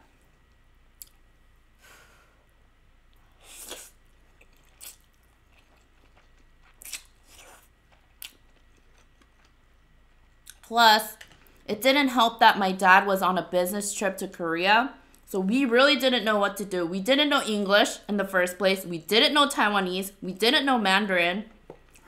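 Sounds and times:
person slurping noodles: 3.4s - 4.0s
chewing sounds: 3.5s - 9.6s.

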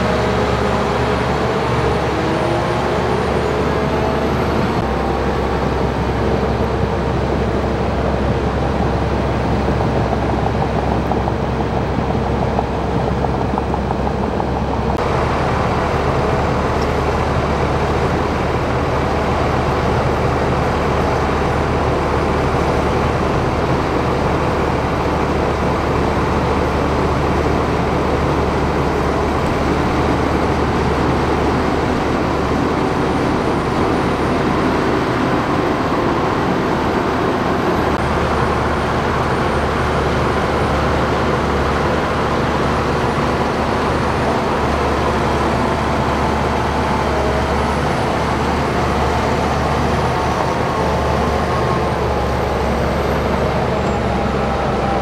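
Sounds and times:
bulldozer diesel engine under load: 0.0s - 55.0s.

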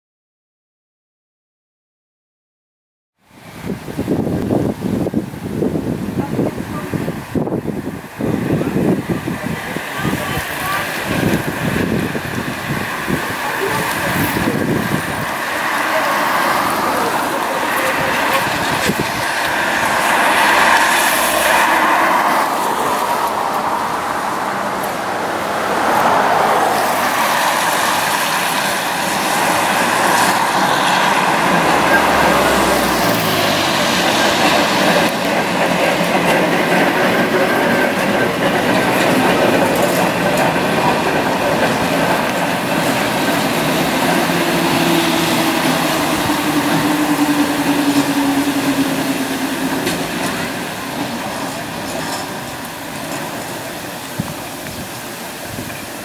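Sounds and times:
passing car traffic: 3.2s - 56.0s
tram wheels on rails: 3.3s - 56.0s.

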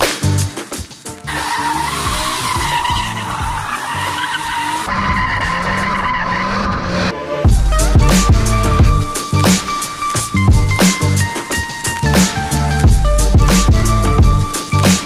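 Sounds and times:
tyres screeching: 1.2s - 7.1s
car engine: 1.3s - 11.4s.

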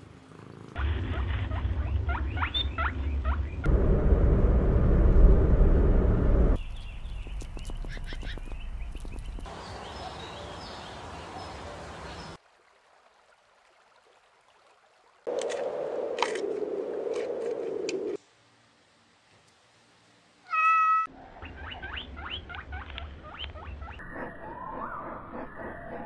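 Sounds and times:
low hum: 0.8s - 9.4s.

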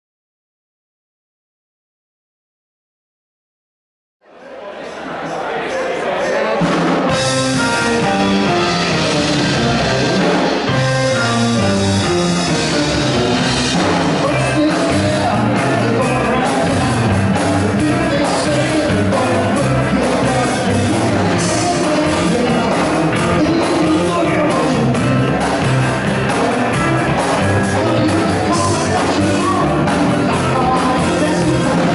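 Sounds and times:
keyboard: 5.1s - 31.9s
electric guitars: 6.4s - 31.9s
drum kit: 6.5s - 31.9s
bass guitar: 6.6s - 31.9s.

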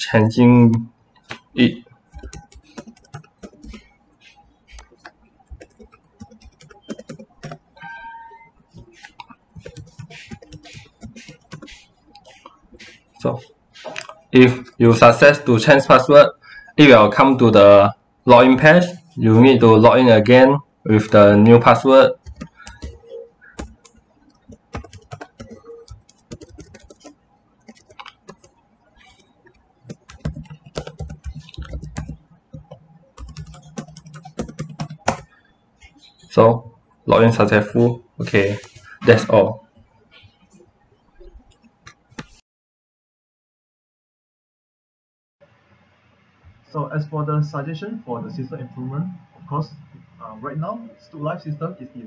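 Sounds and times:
typing on computer keyboard: 2.1s - 7.7s, 8.8s - 12.9s, 22.0s - 35.4s
brief tonal sound: 7.8s - 8.6s.

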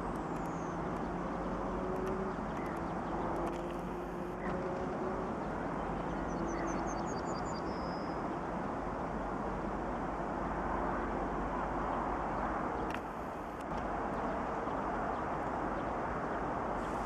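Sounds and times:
songbird singing: 0.0s - 8.6s.

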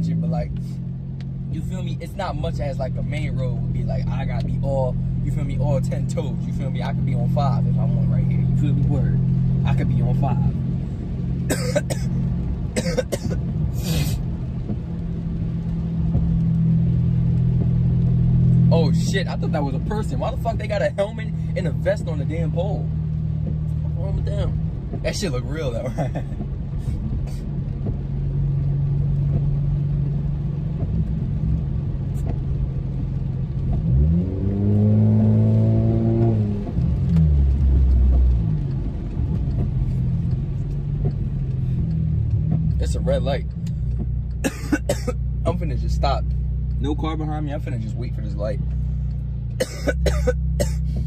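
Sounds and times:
car engine hum and road noise: 0.0s - 51.0s
person coughing: 11.5s - 12.1s, 12.8s - 14.2s, 44.4s - 45.2s, 49.6s - 50.9s.

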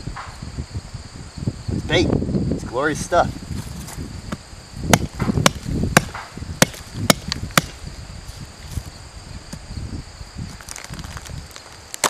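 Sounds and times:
knife chopping into wood: 4.9s - 7.8s.

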